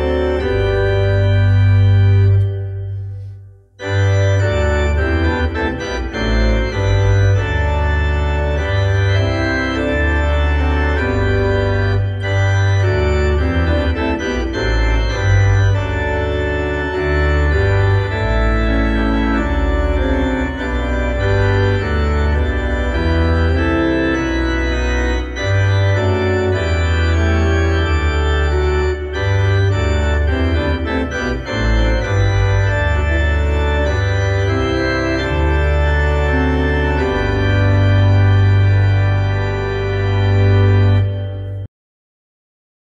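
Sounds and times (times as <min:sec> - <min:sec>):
organ playing slow chords: 0:00.0 - 0:41.7.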